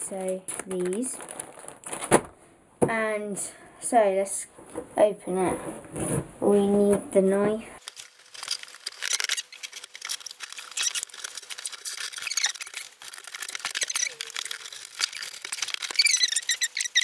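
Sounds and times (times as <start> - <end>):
cardboard rustling: 0.2 - 2.3, 7.8 - 17.0
cardboard flaps squeaking: 7.8 - 17.0
knife cutting tape and cardboard: 7.8 - 17.0.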